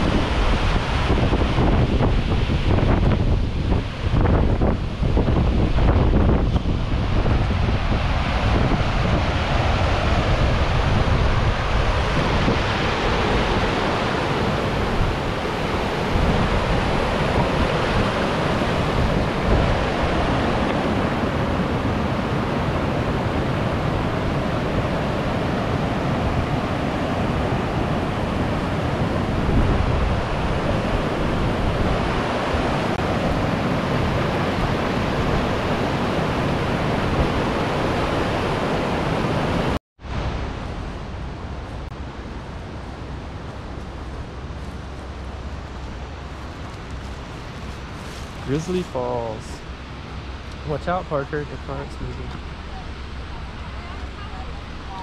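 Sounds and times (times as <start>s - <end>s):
waterfall rushing: 0.0s - 41.2s, 42.0s - 55.0s
wind buffeting microphone: 0.0s - 55.0s.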